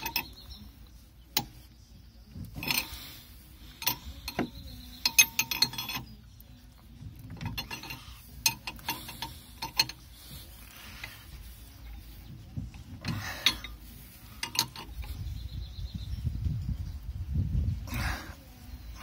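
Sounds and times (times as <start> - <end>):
wrench clinking against metal fitting: 0.0 - 0.6, 2.4 - 6.4, 7.2 - 10.2, 13.0 - 15.2.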